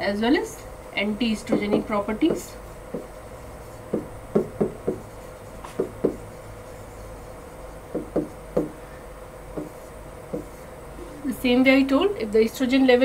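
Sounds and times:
stylus tapping on glass screen: 0:07.9 - 0:08.8.

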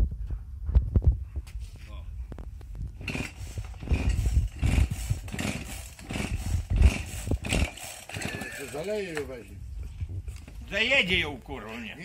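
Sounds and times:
chainsaw engine turning over: 0:03.0 - 0:09.4.

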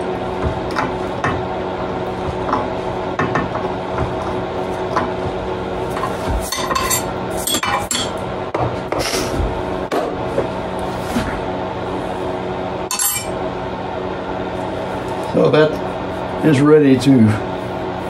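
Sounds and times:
steady low hum: 0:00.0 - 0:18.0
metal clinks and scrapes: 0:06.0 - 0:08.1.

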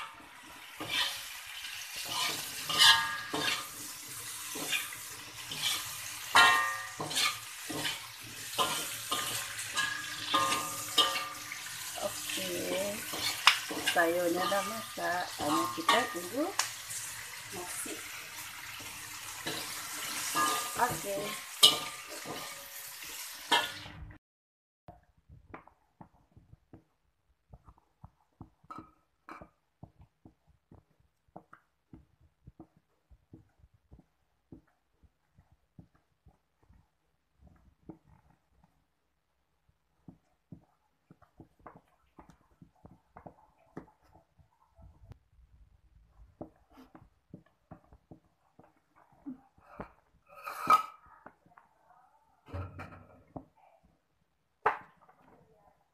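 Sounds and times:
spatula scraping a wok: 0:00.0 - 0:23.9, 0:48.5 - 0:51.2
food sizzling: 0:00.0 - 0:24.2, 0:39.6 - 0:51.6.

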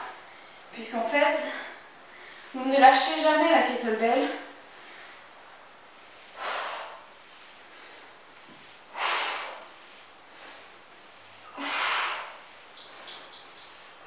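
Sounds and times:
woman breathing out hard: 0:06.4 - 0:07.1, 0:11.4 - 0:12.4.

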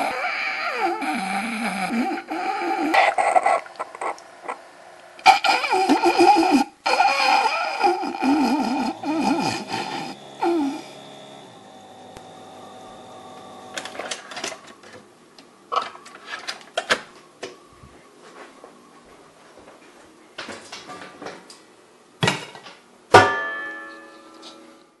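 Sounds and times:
steady held tone: 0:06.8 - 0:14.1.

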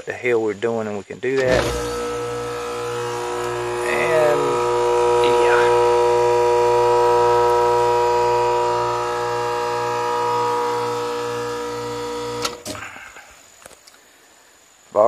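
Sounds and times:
contactor click: 0:01.4 - 0:12.8
condensing unit humming: 0:01.4 - 0:13.4.

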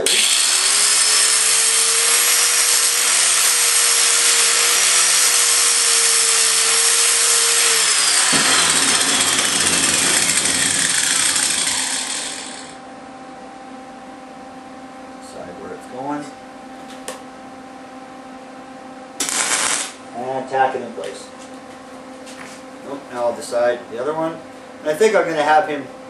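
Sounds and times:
grinder grinding steel rod: 0:00.0 - 0:12.8
grinder winding down whine: 0:00.0 - 0:12.8.

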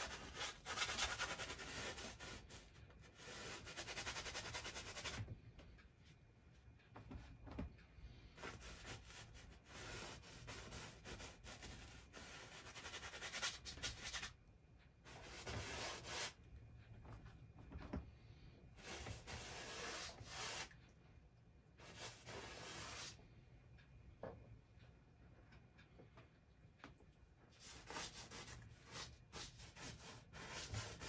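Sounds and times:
paintbrush scrubbing on canvas: 0:18.8 - 0:20.8, 0:21.8 - 0:23.2.

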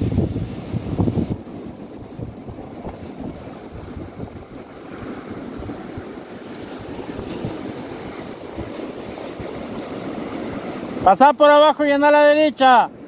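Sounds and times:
wind buffeting microphone: 0:00.0 - 0:11.1
sea surf breaking: 0:00.0 - 0:13.0.

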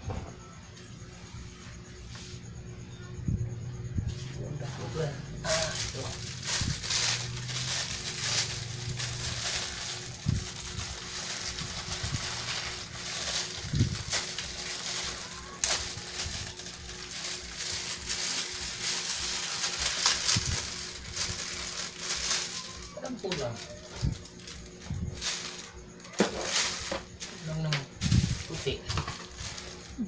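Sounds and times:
steady low hum: 0:00.0 - 0:30.0
plastic packaging crinkling: 0:05.4 - 0:30.0.

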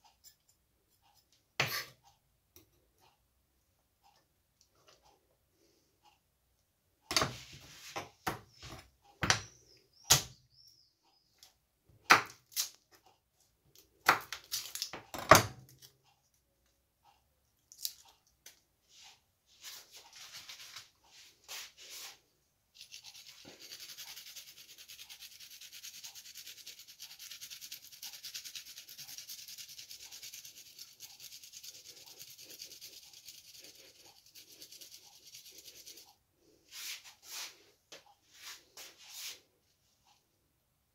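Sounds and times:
garlic rasping on metal grater: 0:22.8 - 0:36.1.

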